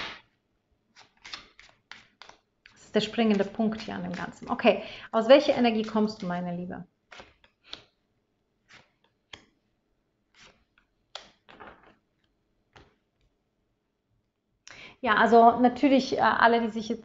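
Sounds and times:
cards clicking and sliding: 0.9 - 4.5, 7.1 - 8.0, 8.6 - 9.6, 10.3 - 12.0.

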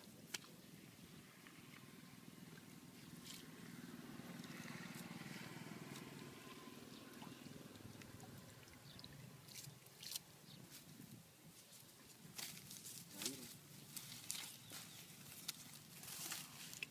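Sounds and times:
water trickling and dripping: 4.3 - 10.8.

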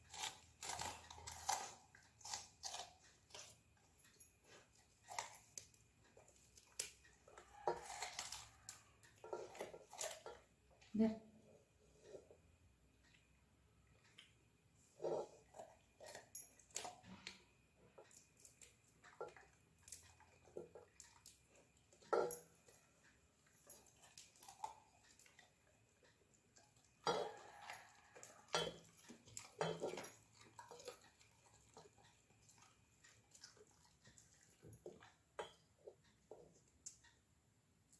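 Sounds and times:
dog chewing: 0.0 - 10.5, 17.9 - 36.7.

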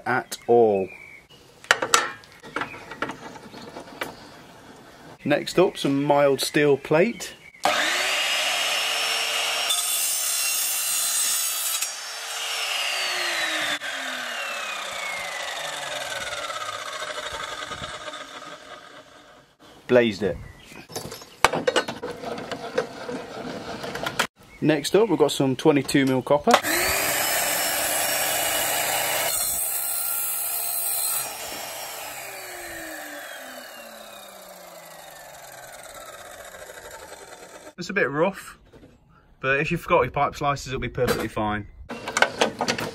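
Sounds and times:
chop saw motor running: 7.6 - 10.4, 11.7 - 19.6, 26.6 - 37.8
saw blade winding down: 7.6 - 19.6, 26.6 - 37.8
saw blade grinding through steel: 26.6 - 37.8.

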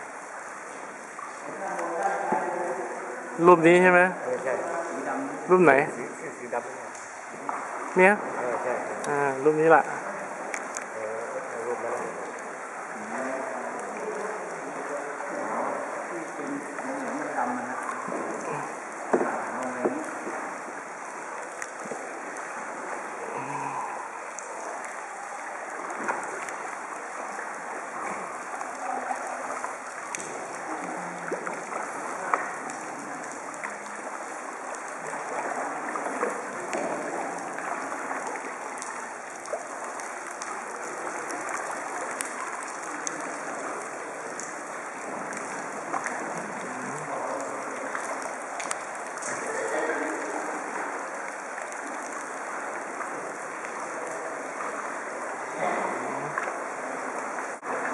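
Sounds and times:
paddles splashing water: 0.0 - 57.9
water lapping: 0.0 - 57.9
paddle knocks: 19.0 - 20.5.

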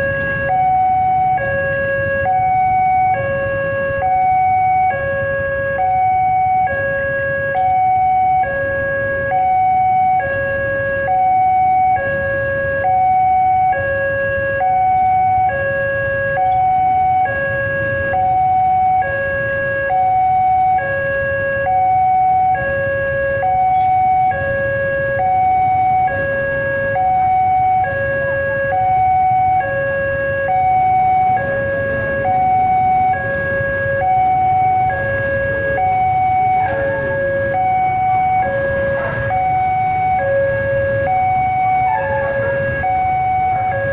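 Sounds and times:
two-tone crossing alarm: 0.0 - 43.9
motorcycle engines idling: 30.4 - 43.9.

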